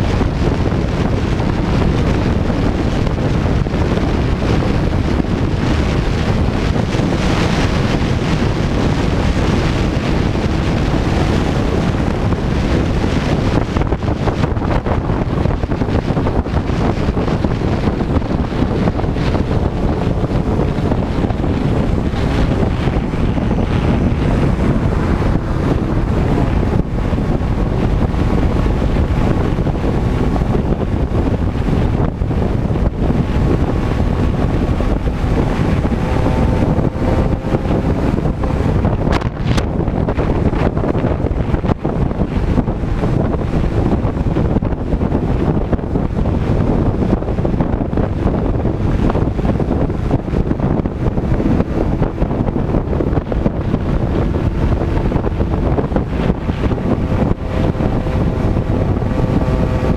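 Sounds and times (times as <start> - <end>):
motorcycle engine: 0.0 - 59.9
wind buffeting microphone: 0.0 - 59.9.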